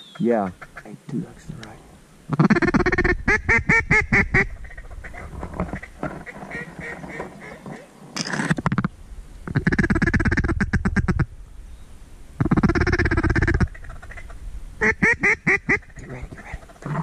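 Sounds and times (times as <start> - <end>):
duck call quacks: 2.3 - 4.5, 9.6 - 11.2, 12.4 - 15.9.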